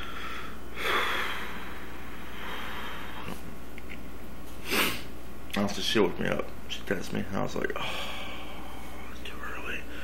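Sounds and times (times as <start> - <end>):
long breathy exhale: 0.0 - 3.4
low electrical hum: 0.0 - 10.0
quick intake of breath: 4.6 - 5.1.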